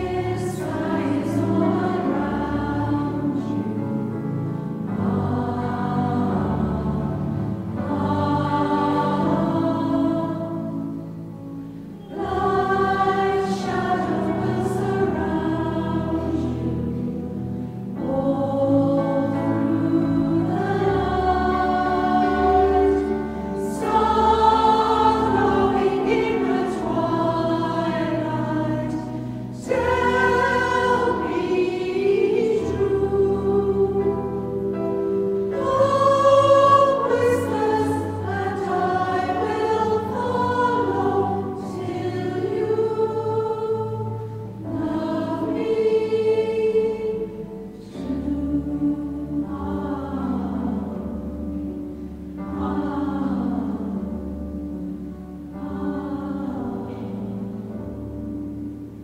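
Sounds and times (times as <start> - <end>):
choir singing a carol: 0.0 - 59.0.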